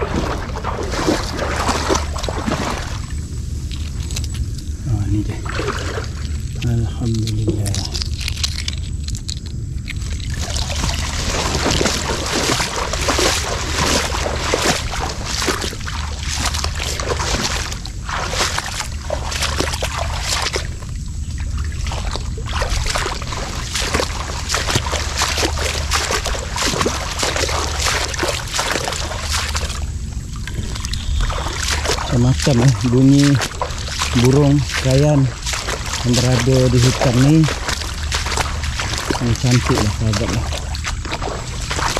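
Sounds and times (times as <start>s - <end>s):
steady low hum: 0.0s - 41.9s
water splashing against hull: 0.0s - 41.9s.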